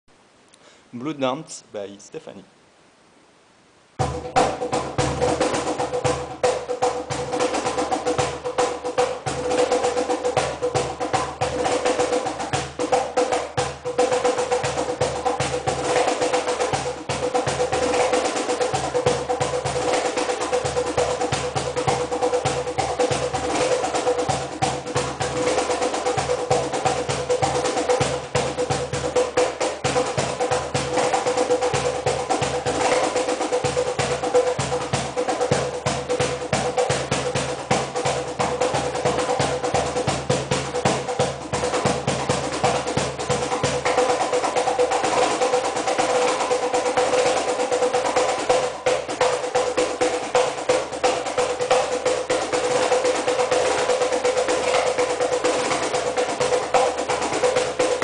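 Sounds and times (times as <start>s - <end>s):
fast cajon drumming: 4.0s - 58.0s.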